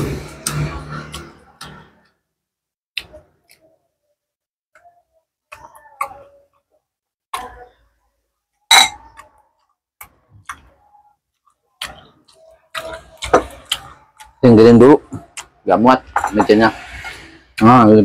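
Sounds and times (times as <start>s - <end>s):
spoon against ceramic plates: 8.7s - 10.7s, 16.1s - 17.2s
chewing clicks and smacks: 9.2s - 14.4s.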